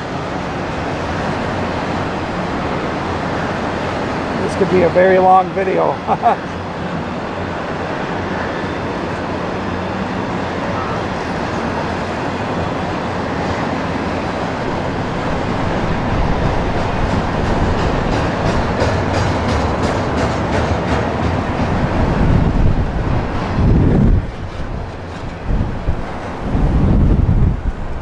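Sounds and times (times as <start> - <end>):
freight train rumbling past: 0.0 - 28.0
wheels clicking over rail joints: 9.1 - 23.4, 24.2 - 26.5.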